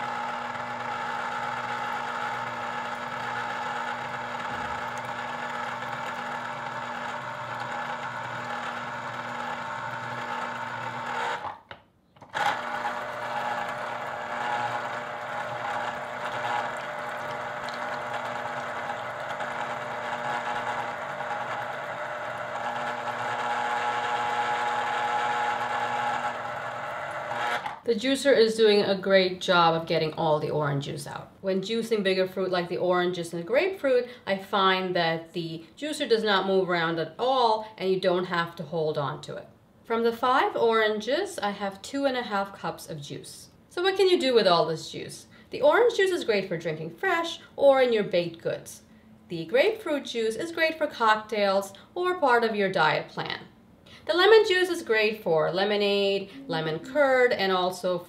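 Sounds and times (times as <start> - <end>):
citrus juicer motor humming: 0.0 - 11.6, 12.2 - 27.8.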